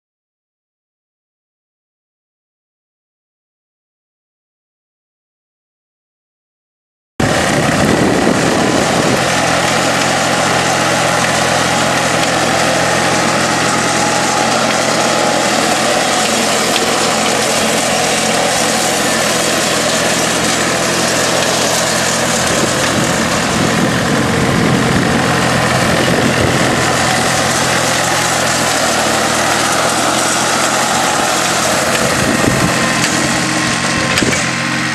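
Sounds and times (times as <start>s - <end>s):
rotary mower cutting grass: 7.2s - 34.9s
tractor diesel engine running: 7.2s - 34.9s.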